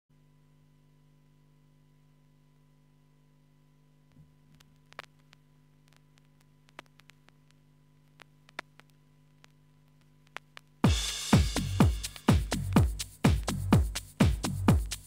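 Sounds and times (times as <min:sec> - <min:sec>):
faint electrical hum: 0:00.2 - 0:15.0
vinyl crackle: 0:04.0 - 0:15.0.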